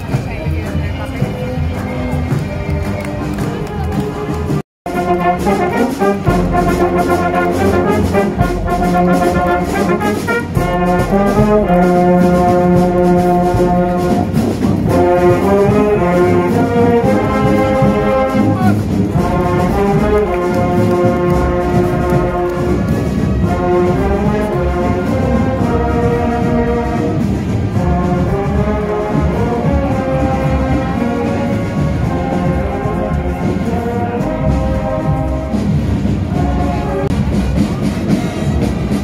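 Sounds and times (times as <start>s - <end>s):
marching brass band playing: 0.0s - 39.0s.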